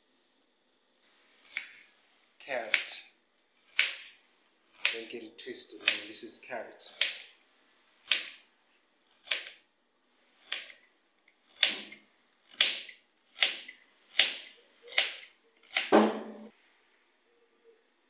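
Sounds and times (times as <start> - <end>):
knife slicing carrot on board: 2.6 - 3.0, 6.9 - 7.3, 11.6 - 12.0, 12.6 - 16.5.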